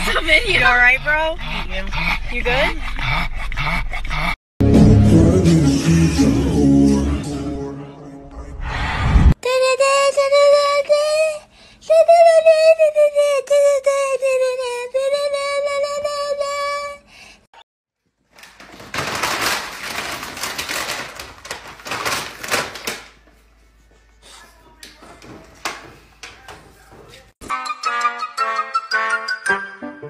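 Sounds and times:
plastic bag crinkling: 18.2 - 23.4.

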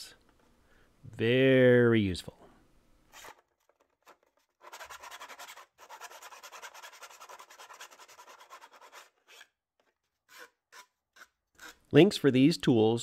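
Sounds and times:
file rasping through wood: 4.1 - 9.5, 10.2 - 11.9.

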